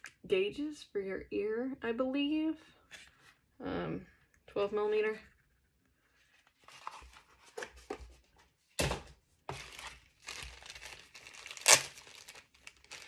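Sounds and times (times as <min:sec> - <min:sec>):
packaging crinkling: 0:09.5 - 0:13.0.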